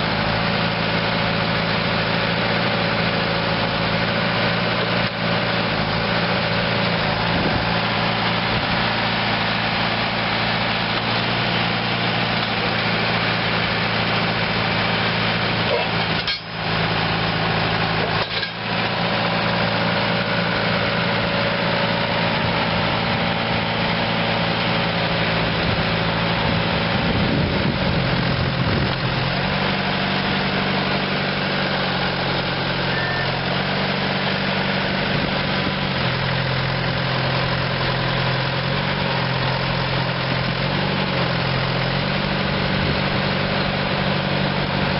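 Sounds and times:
diesel engine idling: 0:00.0 - 0:44.9.

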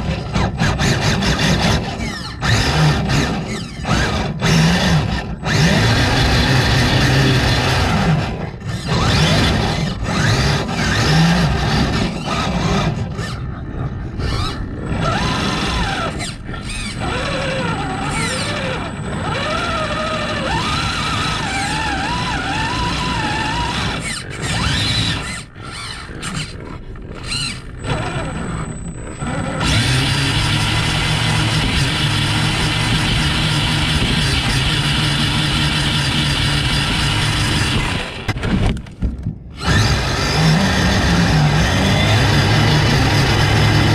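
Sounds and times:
electric motor and gears whining: 0:00.0 - 0:43.9.

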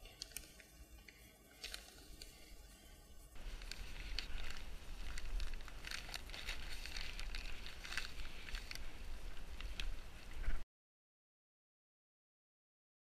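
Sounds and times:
plastic bag rustling: 0:01.4 - 0:10.6.

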